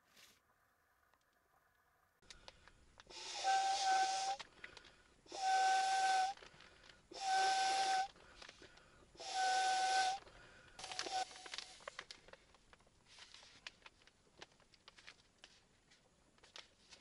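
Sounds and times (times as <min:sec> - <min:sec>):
air whistling through pad valve: 0:03.1 - 0:04.4, 0:07.1 - 0:08.1, 0:09.2 - 0:10.2.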